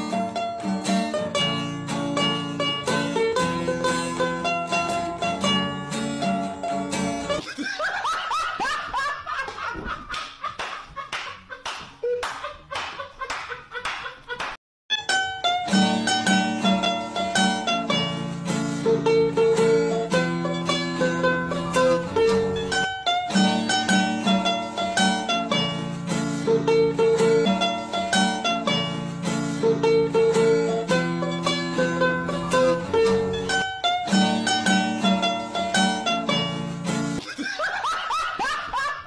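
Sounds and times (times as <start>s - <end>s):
plucked string instrument music: 0.0s - 7.4s, 14.9s - 37.2s
laughter: 7.4s - 14.6s, 37.2s - 39.0s.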